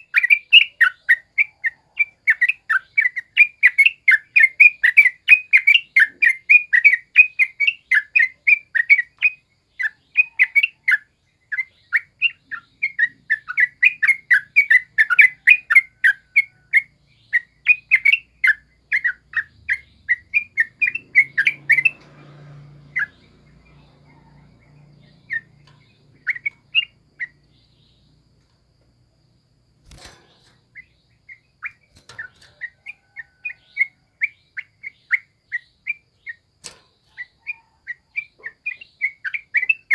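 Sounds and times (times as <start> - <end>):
bird chattering calls: 25.0 - 28.0.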